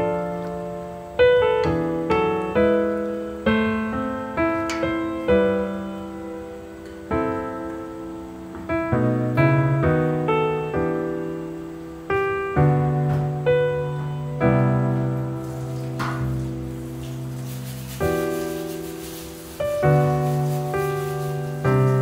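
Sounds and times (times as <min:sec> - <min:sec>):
slow piano music: 0:00.0 - 0:22.0.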